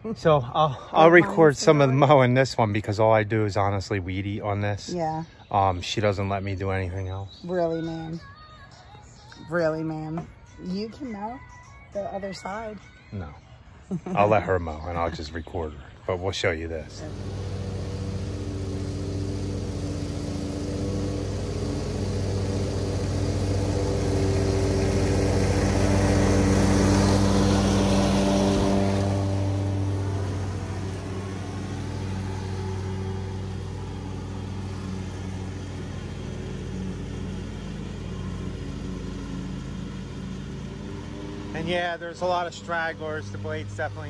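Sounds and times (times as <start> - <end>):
lawn mower engine running: 16.1 - 44.0.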